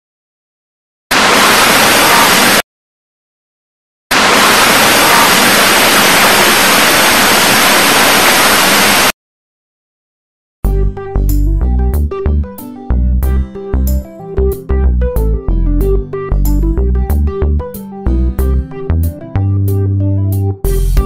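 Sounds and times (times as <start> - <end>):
loud static hiss: 1.1 - 2.6, 4.1 - 9.1.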